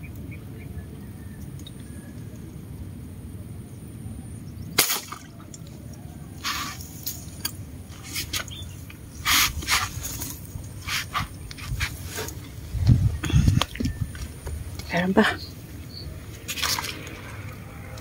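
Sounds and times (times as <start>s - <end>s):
airgun shot: 4.8s - 5.3s
small water splashes: 4.8s - 9.0s, 16.4s - 18.0s.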